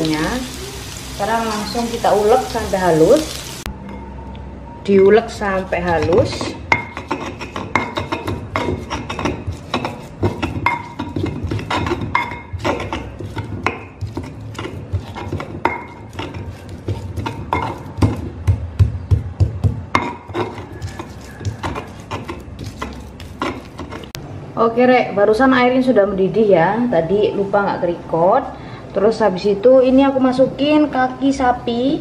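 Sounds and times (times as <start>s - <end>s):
stone pestle grinding in mortar: 5.0s - 24.2s.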